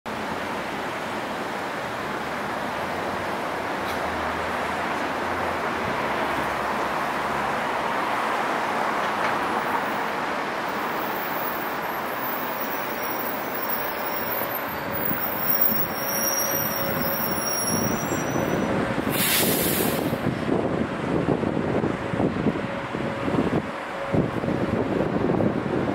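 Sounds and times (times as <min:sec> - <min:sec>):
traffic hum: 0:00.1 - 0:25.9
loud hiss: 0:19.0 - 0:20.2.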